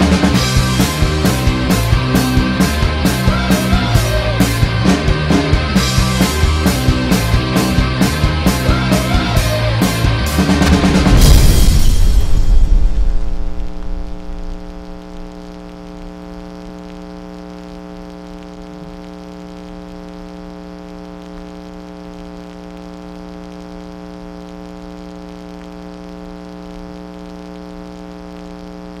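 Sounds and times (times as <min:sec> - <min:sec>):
loud music: 0:00.0 - 0:15.5
electrical buzz: 0:00.0 - 0:29.0.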